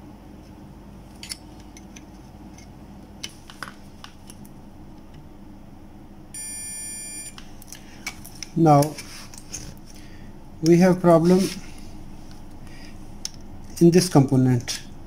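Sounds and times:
electronic beep: 0:06.4 - 0:07.3.

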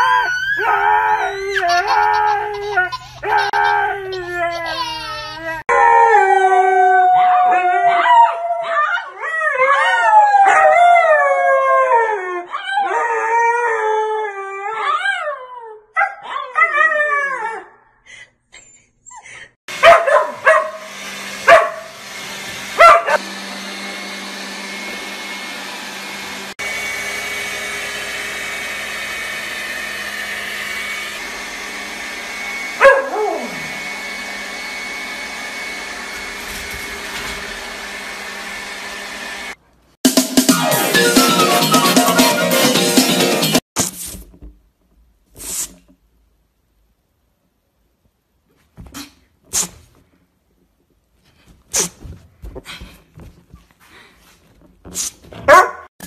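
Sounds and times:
dogs howling: 0:00.0 - 0:04.8, 0:05.6 - 0:15.4, 0:32.8 - 0:33.7
dog yelp: 0:00.0 - 0:05.6, 0:19.8 - 0:20.8, 0:21.5 - 0:21.9, 0:22.8 - 0:23.2, 0:32.8 - 0:33.5, 0:55.5 - 0:55.9
robot vacuum cleaner hum: 0:20.8 - 0:39.6.

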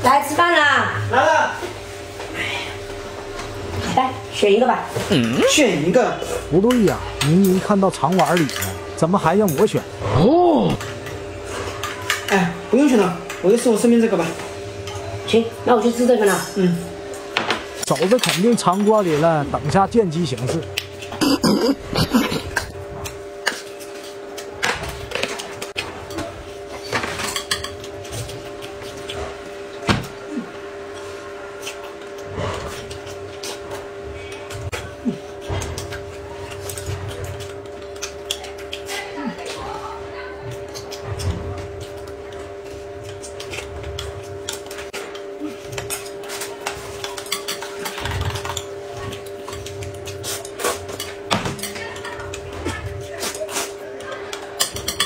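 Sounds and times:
steady low hum: 0:18.8 - 0:55.0
chewing: 0:31.5 - 0:39.7.

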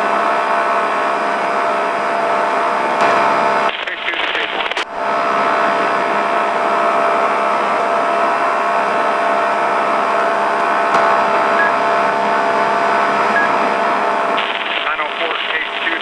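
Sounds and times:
utility vehicle engine running: 0:10.6 - 0:16.0.

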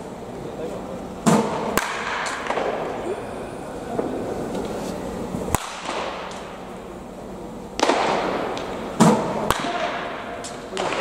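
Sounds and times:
baseball bats cracking balls: 0:01.2 - 0:03.1, 0:03.8 - 0:07.1, 0:07.7 - 0:11.0.

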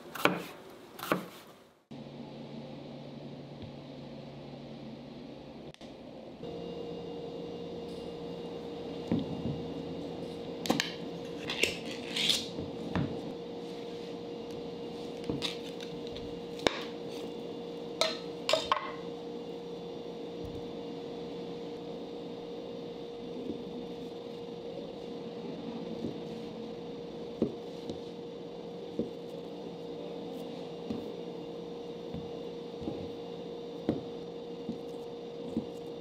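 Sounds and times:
steady hum: 0:01.7 - 0:36.0.

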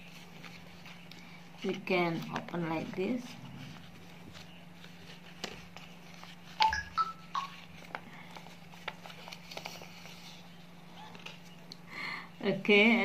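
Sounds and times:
paper crinkling and folding: 0:00.0 - 0:06.6, 0:07.4 - 0:11.7
short electronic beeps: 0:06.6 - 0:07.5.

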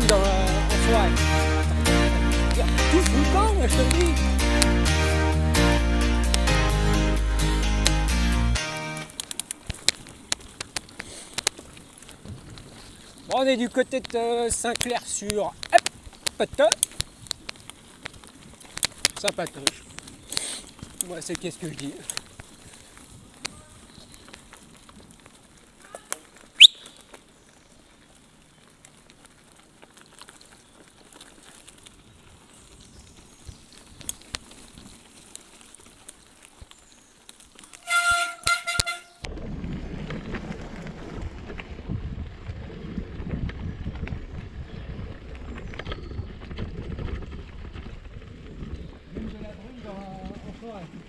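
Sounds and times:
tyres rolling on dirt: 0:00.0 - 0:51.0
bike clicks and rattles: 0:09.0 - 0:51.0
wind on the microphone: 0:39.2 - 0:51.0.

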